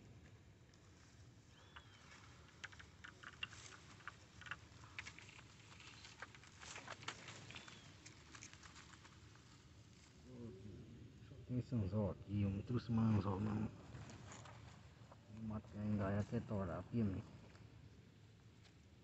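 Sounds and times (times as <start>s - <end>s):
faint light clicks and ticks: 1.5s - 10.1s.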